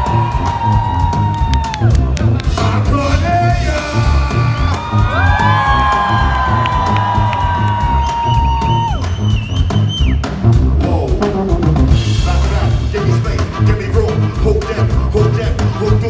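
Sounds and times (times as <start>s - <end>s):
live band playing: 0.0s - 16.0s.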